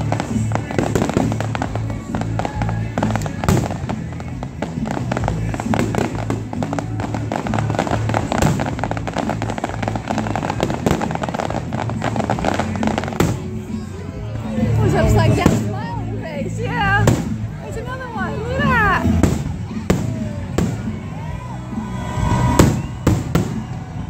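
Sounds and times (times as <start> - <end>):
heavy firework bangs: 0.0 - 13.8, 17.0 - 17.6, 18.8 - 21.3, 22.1 - 24.0
fireworks bursting and crackling: 0.0 - 16.0, 16.6 - 24.0
music: 0.0 - 24.0.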